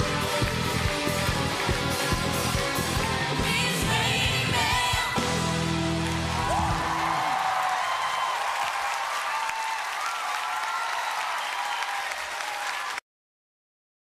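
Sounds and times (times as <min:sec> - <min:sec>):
audience applauding: 0:00.0 - 0:03.4, 0:05.8 - 0:13.0
pop song: 0:00.0 - 0:06.0
faint high cheers: 0:06.1 - 0:13.0.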